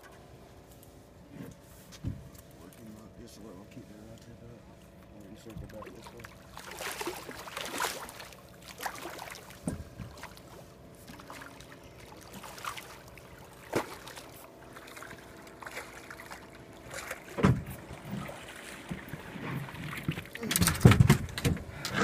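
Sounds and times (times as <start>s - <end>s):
boat engine hum: 0.0s - 22.0s
fish thrashing water: 5.6s - 21.2s.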